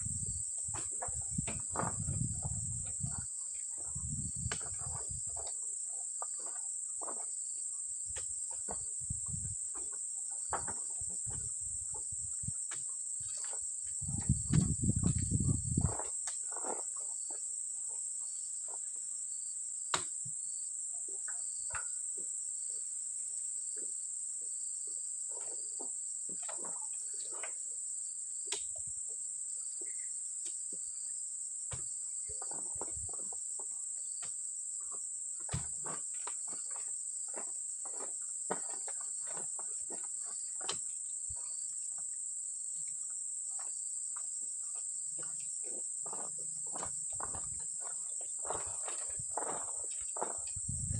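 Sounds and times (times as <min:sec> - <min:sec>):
short knocks and thuds: 0:00.0 - 0:03.2, 0:14.0 - 0:16.0, 0:35.4 - 0:36.0.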